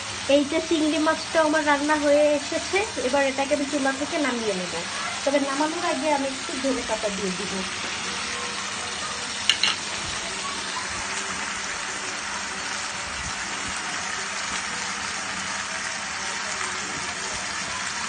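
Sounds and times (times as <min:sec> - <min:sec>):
curry bubbling and sizzling: 0:00.0 - 0:18.0.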